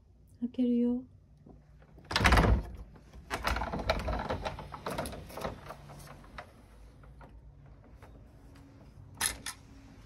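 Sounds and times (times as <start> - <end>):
door frame rattling in its track: 2.0 - 7.4.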